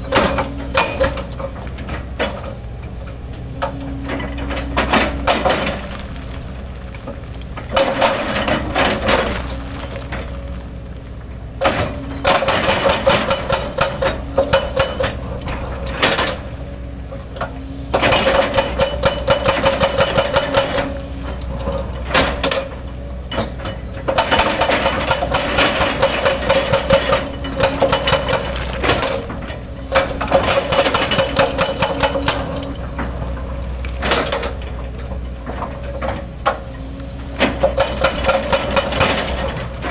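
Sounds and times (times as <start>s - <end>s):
diesel engine running: 0.0s - 39.9s
bucket scraping and breaking rock: 4.8s - 13.1s, 24.3s - 31.2s.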